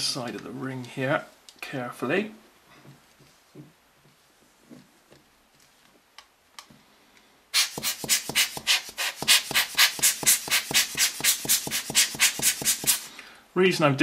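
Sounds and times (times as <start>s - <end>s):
rubber air blower puffing: 7.6s - 13.2s.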